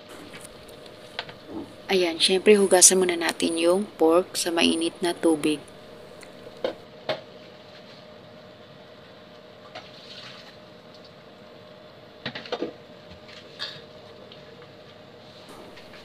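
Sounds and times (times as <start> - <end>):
water bubbling in pot: 0.0 - 4.4
faint steady hum: 0.0 - 16.0.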